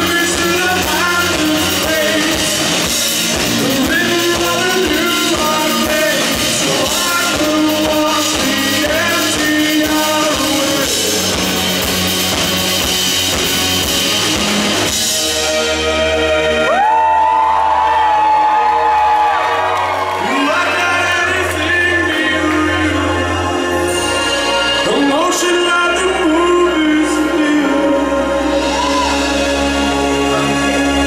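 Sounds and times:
person singing lead vocal: 0.0s - 12.0s, 20.0s - 31.0s
bass guitar: 0.0s - 31.0s
drum kit: 0.0s - 31.0s.

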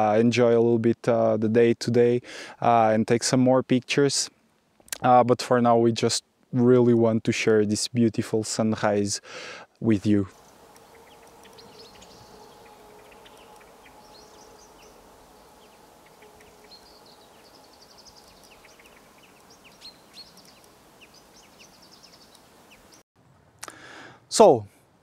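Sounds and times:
faint steady hum: 9.3s - 24.0s
birds chirping and trilling: 10.3s - 23.0s.

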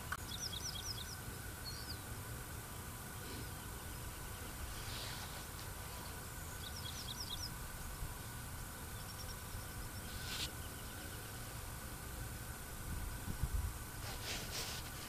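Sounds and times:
bird chirping: 0.0s - 5.3s, 6.4s - 7.6s, 8.8s - 11.6s
low rumble and hiss: 0.0s - 15.0s.

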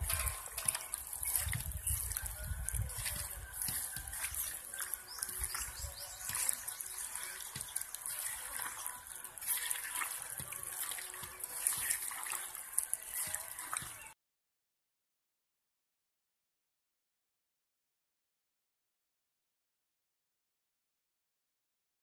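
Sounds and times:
hand squelching meat in paste: 0.0s - 14.1s.

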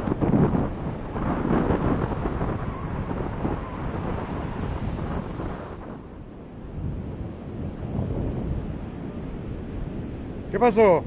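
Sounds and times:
surf breaking on shore: 0.0s - 6.2s
wind buffeting microphone: 0.0s - 11.0s.

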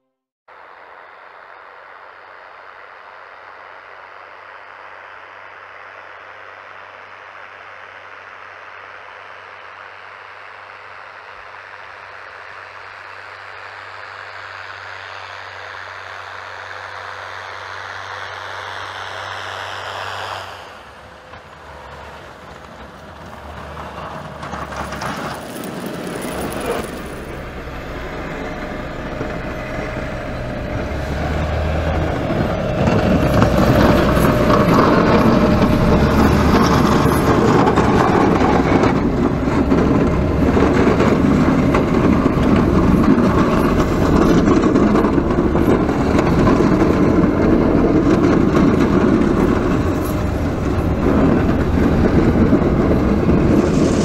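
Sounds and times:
tractor engine humming: 6.2s - 54.0s
rushing hiss of thrown snow: 53.0s - 54.0s.

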